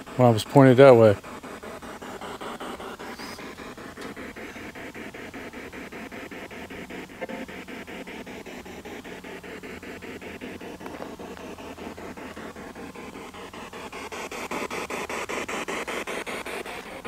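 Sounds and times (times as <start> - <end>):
chopped radio static: 0.0 - 9.0.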